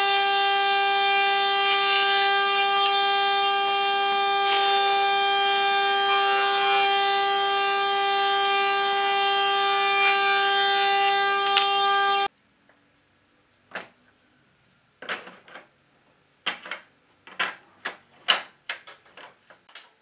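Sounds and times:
power tool high-pitched whine: 0.0s - 12.3s.

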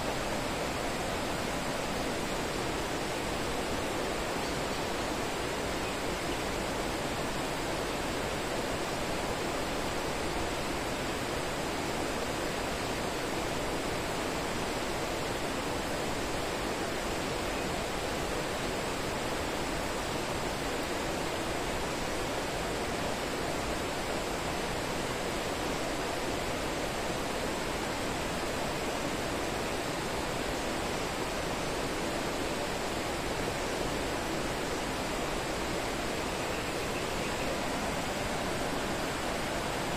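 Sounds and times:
rushing outdoor noise: 0.0s - 39.9s
faint high steady tone: 34.8s - 39.9s.

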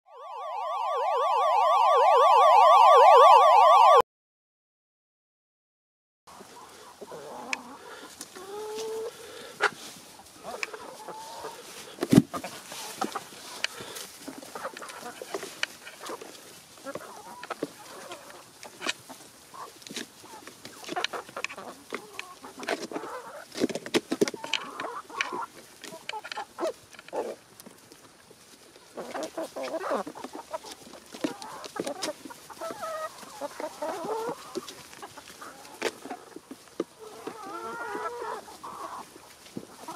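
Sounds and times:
chickens clucking softly: 6.3s - 39.9s.

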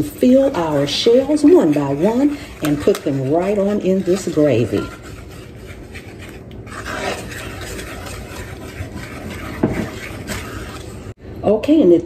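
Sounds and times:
wooden spoon scraping skillet: 0.0s - 11.2s.

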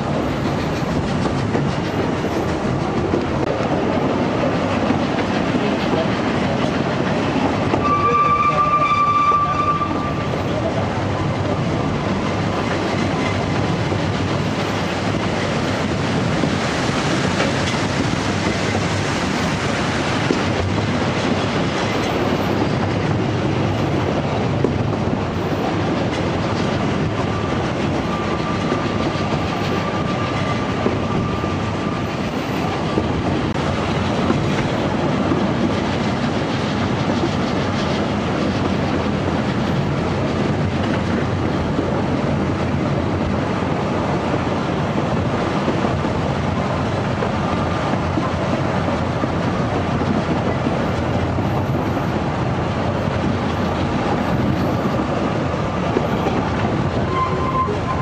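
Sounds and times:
train coaches rumbling: 0.0s - 58.0s.

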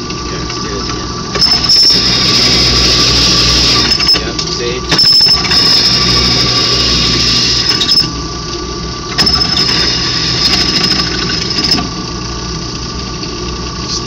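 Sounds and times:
drill press motor hum: 0.0s - 14.0s
drill bit squealing in steel: 1.4s - 4.3s, 4.9s - 8.1s.

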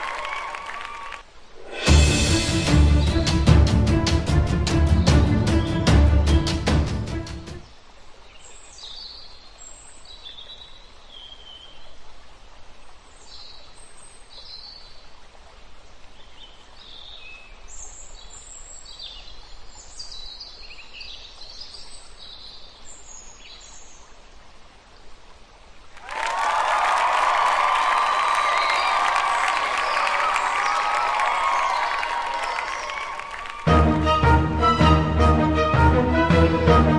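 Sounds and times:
loud music: 1.7s - 7.6s, 33.7s - 36.9s.

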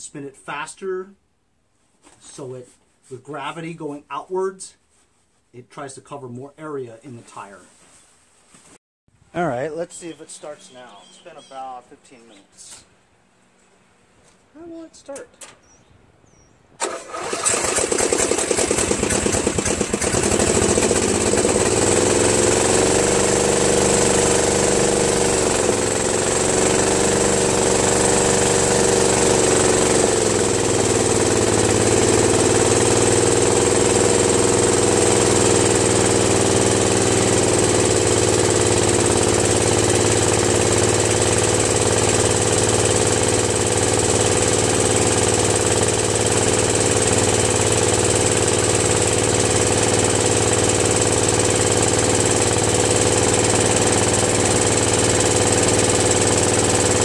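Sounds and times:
riding mower engine running: 16.8s - 57.0s.

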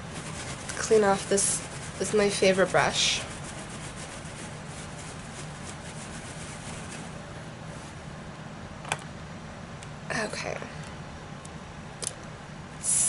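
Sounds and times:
brush rubbing on cloth: 0.0s - 8.0s.

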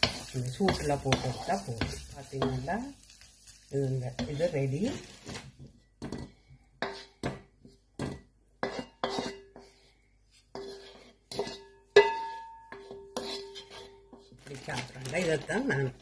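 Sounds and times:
spatula knocking and scraping wok: 0.0s - 16.0s.

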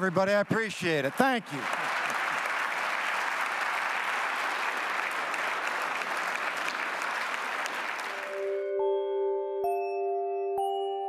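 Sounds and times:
audience applauding: 0.0s - 8.8s
chime-like outro tune: 8.1s - 11.0s.

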